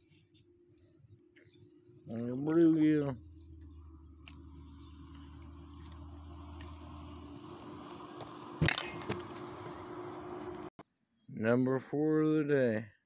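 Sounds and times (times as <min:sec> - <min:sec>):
crickets chirring: 0:00.0 - 0:09.8
low hum: 0:00.0 - 0:10.8.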